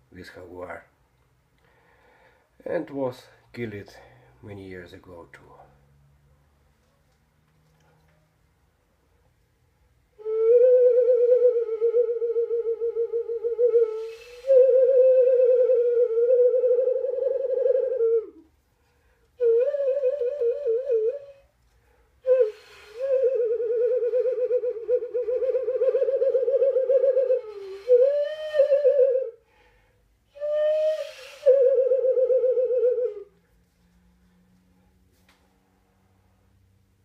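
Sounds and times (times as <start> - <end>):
clay whistle warbling tone: 30.5 - 33.2.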